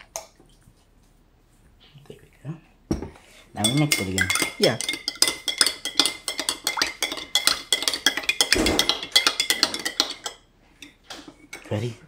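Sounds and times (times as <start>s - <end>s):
metal spoon clinking in glass: 3.6s - 10.9s.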